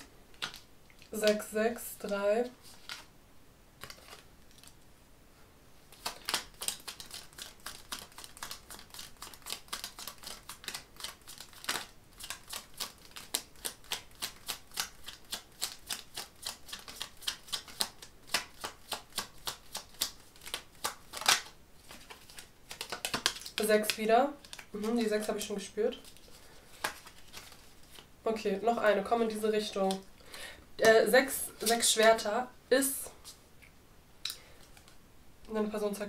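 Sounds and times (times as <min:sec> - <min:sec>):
cards being shuffled: 0:00.0 - 0:03.1, 0:03.8 - 0:04.8, 0:05.9 - 0:28.1, 0:30.8 - 0:32.2.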